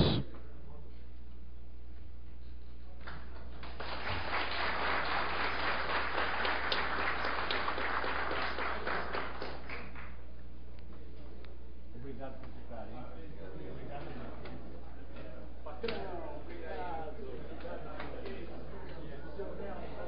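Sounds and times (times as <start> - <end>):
audience applauding: 3.1 - 10.2.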